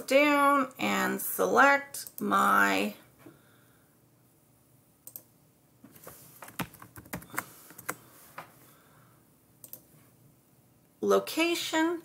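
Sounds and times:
typing on a keyboard: 6.4 - 8.0.

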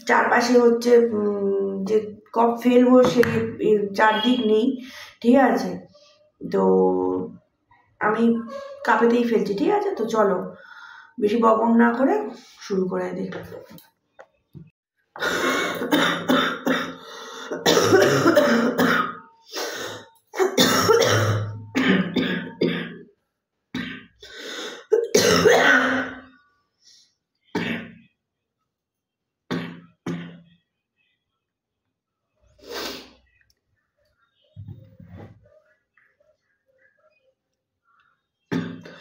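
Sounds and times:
woman clearing her throat: 15.2 - 19.2, 20.4 - 23.0, 24.9 - 26.3
woman coughing: 15.2 - 19.3, 20.4 - 23.0, 24.8 - 26.3.

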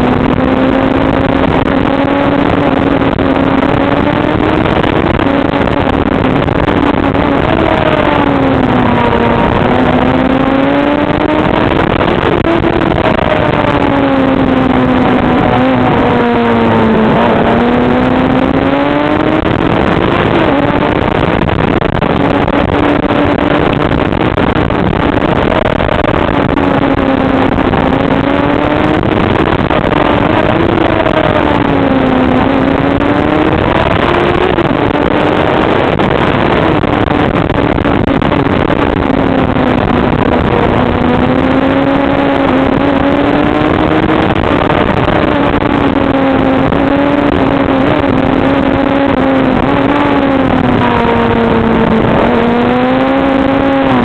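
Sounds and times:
motorcycle engine running: 0.0 - 54.0
rushing noise: 0.0 - 54.0.

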